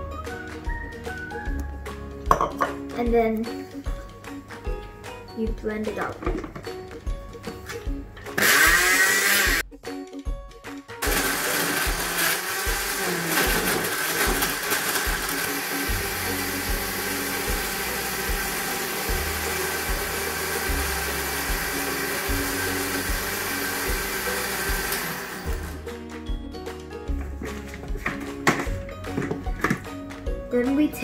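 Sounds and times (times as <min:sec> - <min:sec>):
blender running: 0:08.4 - 0:09.6, 0:11.0 - 0:25.9.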